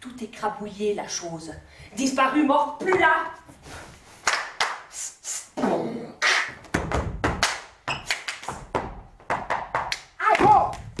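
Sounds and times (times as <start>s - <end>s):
breathy voice-like noises: 4.9s - 6.2s
thumps and knocks on stage: 6.6s - 7.5s.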